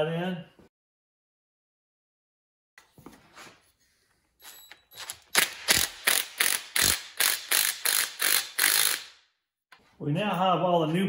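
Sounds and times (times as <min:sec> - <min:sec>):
cordless drill clicking: 0:05.3 - 0:09.1.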